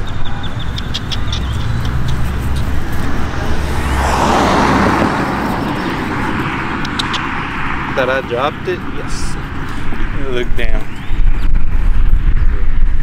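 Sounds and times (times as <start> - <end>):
low traffic rumble: 0.0 - 13.0
car passing by: 1.0 - 10.5.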